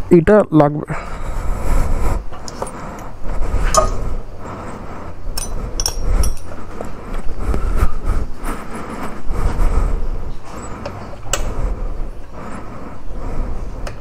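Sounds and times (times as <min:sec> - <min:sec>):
metal hand tools clinking: 0:02.4 - 0:04.0, 0:05.4 - 0:06.6.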